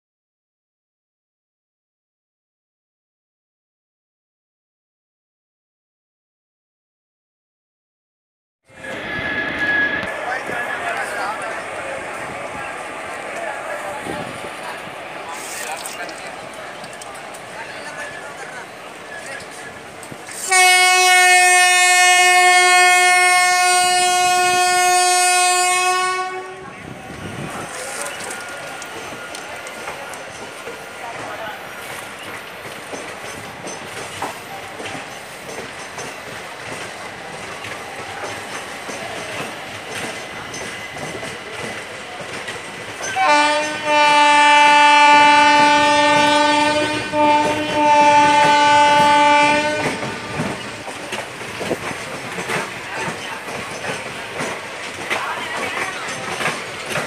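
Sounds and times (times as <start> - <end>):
locomotive horn blast: 20.3 - 26.8, 43.2 - 50.6
train wheels clattering over rails: 27.0 - 57.0.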